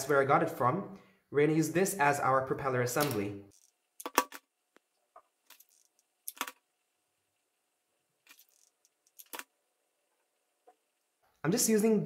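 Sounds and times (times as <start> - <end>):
small wooden pieces clicking: 5.5 - 6.6, 8.3 - 9.5.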